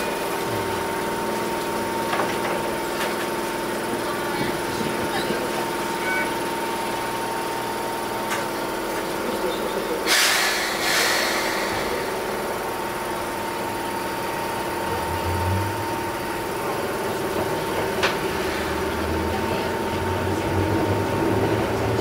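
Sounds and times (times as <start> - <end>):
train electrical equipment humming: 0.0 - 22.0
loud air hisses: 10.0 - 13.6.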